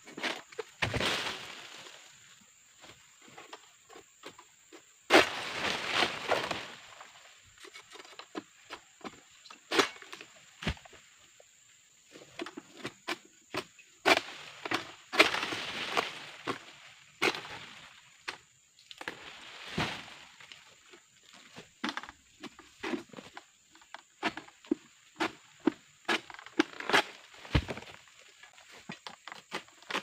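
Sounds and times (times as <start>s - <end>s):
blade knocking and scraping stalks: 2.8s - 11.0s, 12.1s - 17.6s, 18.2s - 30.0s.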